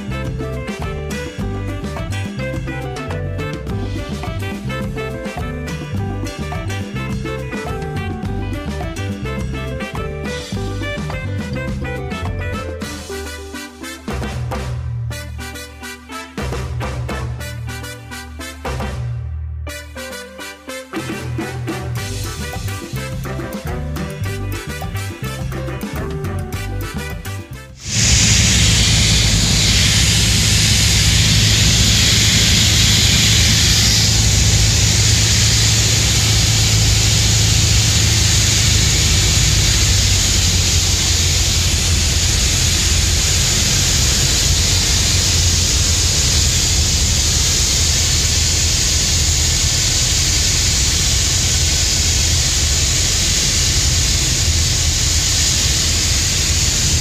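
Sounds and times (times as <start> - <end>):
light aircraft engine droning: 27.8 - 57.0
rushing air noise: 27.8 - 57.0.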